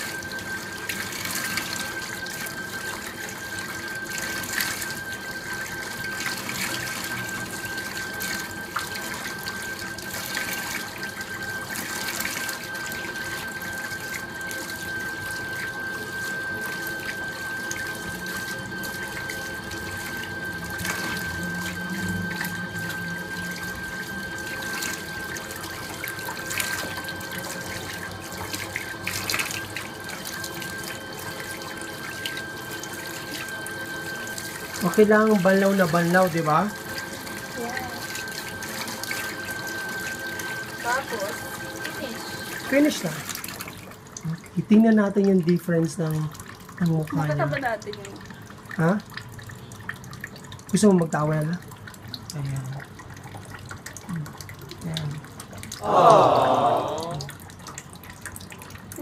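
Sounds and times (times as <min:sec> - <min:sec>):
tap water running into sink: 0:00.0 - 0:55.9, 0:57.2 - 0:59.0
faint high tone: 0:37.5 - 0:38.2.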